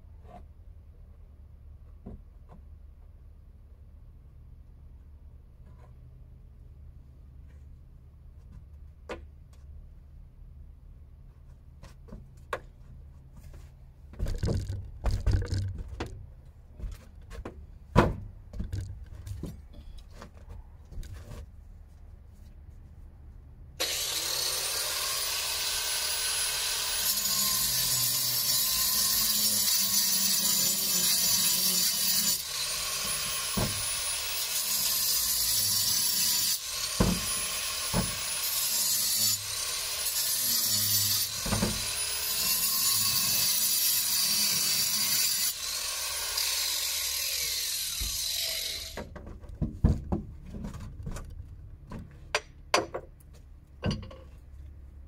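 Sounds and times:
power tool cutting: 23.8 - 49.0.

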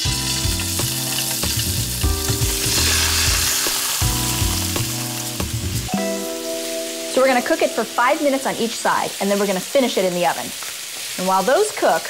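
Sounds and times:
background music: 0.0 - 9.6
meat sizzling in oil: 0.0 - 12.0.

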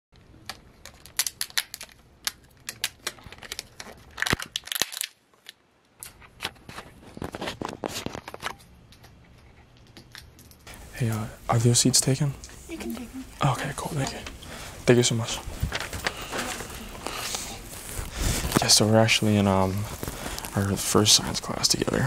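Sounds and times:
paper crinkling and tearing: 0.8 - 8.5, 15.2 - 22.0.

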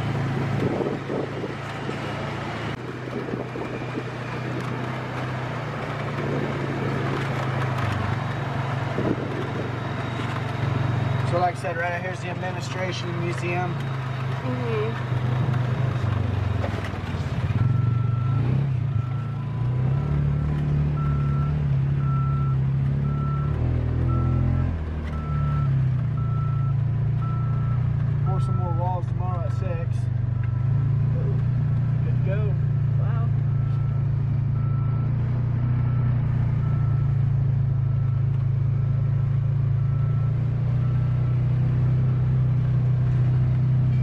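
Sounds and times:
vehicle engine running: 0.0 - 44.0
faint high beep: 33.0 - 38.3.

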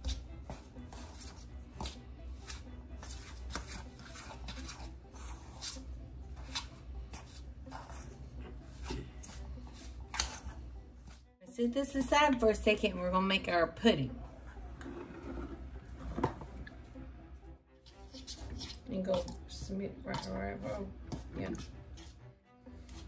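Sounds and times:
metal spoon scraping bowl: 17.9 - 20.8.

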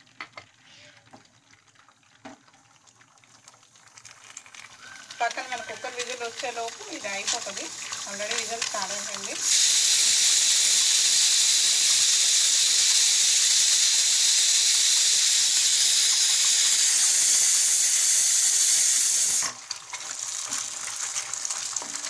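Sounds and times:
pressure cooker whistle steam hiss: 4.8 - 19.6.

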